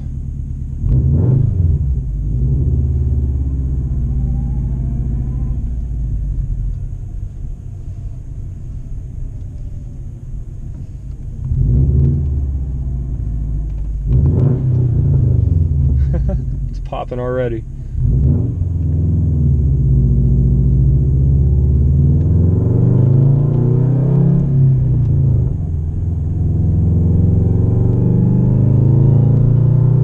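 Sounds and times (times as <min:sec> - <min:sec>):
car exhaust rumbling and revving: 0:00.0 - 0:30.0.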